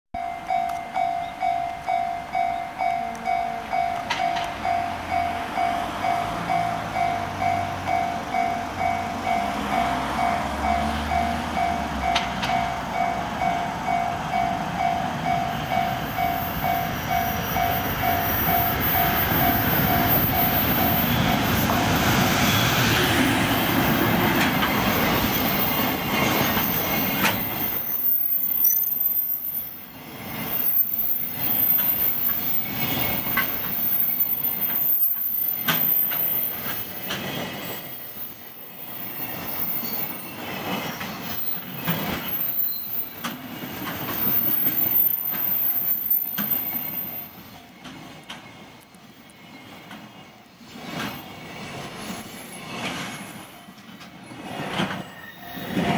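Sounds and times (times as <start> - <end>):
level-crossing alarm dings: 0.2 - 22.2
wagon wheels clattering on rails: 23.2 - 27.8.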